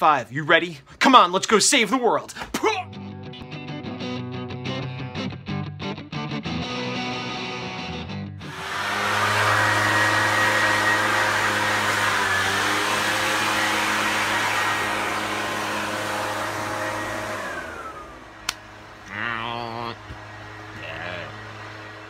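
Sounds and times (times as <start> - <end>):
motor-driven blower running: 8.4 - 22.0
sharp click: 18.4 - 18.6.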